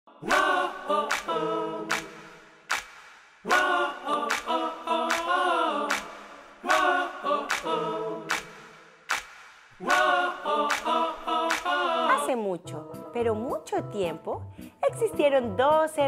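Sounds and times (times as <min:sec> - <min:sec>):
a cappella sung phrase: 0:00.1 - 0:02.4, 0:03.5 - 0:08.7, 0:09.8 - 0:12.5
finger snap click: 0:01.9 - 0:03.2, 0:08.3 - 0:09.6.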